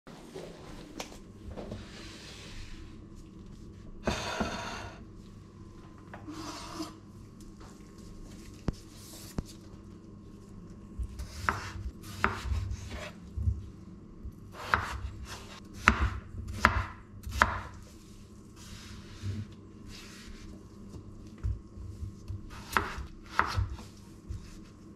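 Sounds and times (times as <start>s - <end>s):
cutting board scraping countertop: 4.0s - 5.0s, 6.2s - 7.0s, 11.2s - 13.2s, 22.5s - 24.6s
knife chopping on wooden board: 11.1s - 13.1s, 14.6s - 17.8s, 22.2s - 24.4s.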